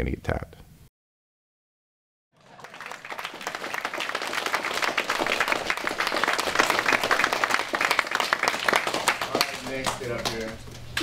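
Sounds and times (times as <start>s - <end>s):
people clapping in applause: 2.4s - 11.0s.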